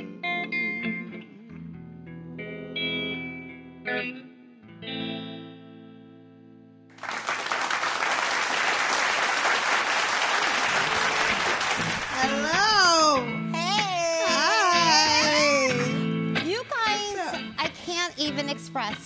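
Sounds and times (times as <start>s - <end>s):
electric guitar playing: 0.0s - 6.9s, 10.4s - 19.0s
loud applause: 7.0s - 13.2s.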